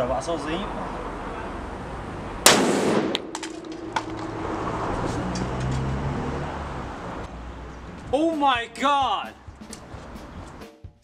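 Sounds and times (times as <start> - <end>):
plastic bottle bursting bang: 2.5 - 4.0.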